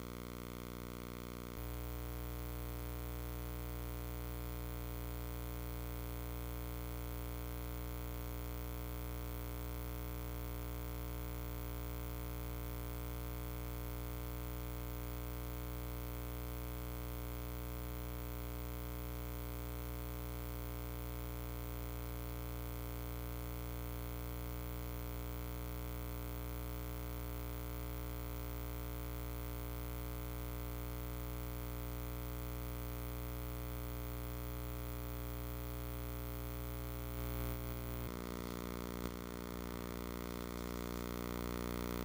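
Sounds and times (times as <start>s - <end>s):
low electrical hum with hiss: 0.0s - 42.0s.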